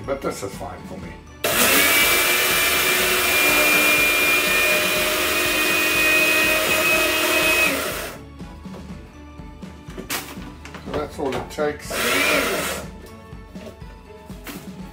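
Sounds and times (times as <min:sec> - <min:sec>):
coffee grinders whirring: 0:01.4 - 0:08.2, 0:11.8 - 0:13.0.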